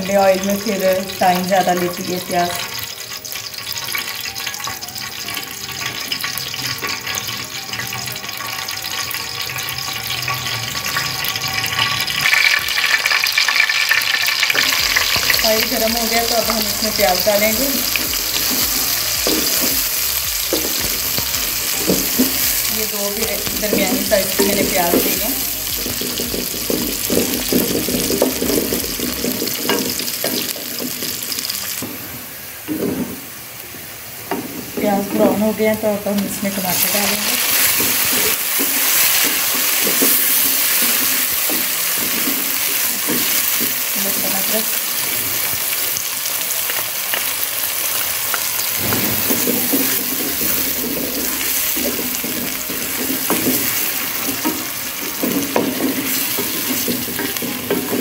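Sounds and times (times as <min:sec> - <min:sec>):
oil hissing and sizzling in pot: 0:00.0 - 0:58.0
spatula scraping a metal pot: 0:48.9 - 0:58.0.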